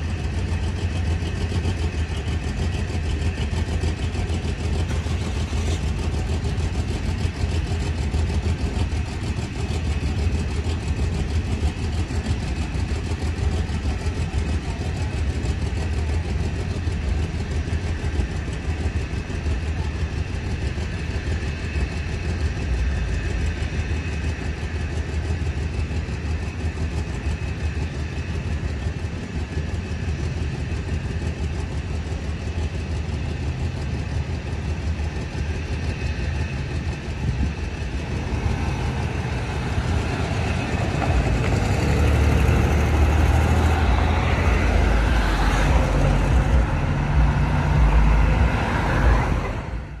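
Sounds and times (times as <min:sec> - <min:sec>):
road traffic rumble: 0:00.0 - 0:25.4, 0:26.1 - 0:50.0
cars driving past close by: 0:38.4 - 0:50.0.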